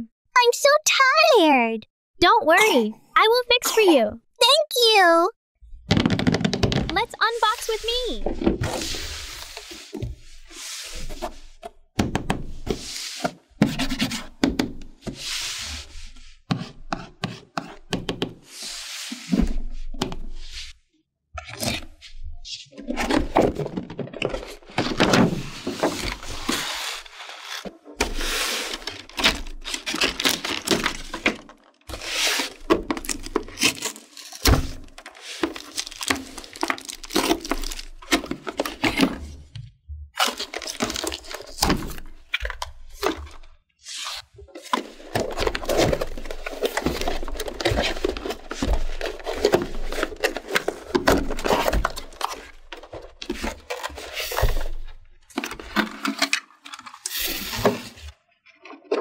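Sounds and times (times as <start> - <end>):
plastic packaging crinkling: 35.3 - 38.1.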